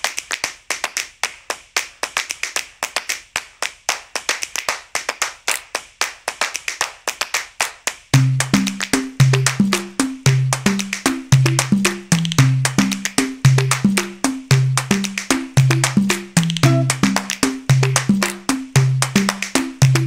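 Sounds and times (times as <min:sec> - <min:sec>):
rhythmic snaps and claps: 0:00.0 - 0:20.0
low percussive notes: 0:08.2 - 0:20.0.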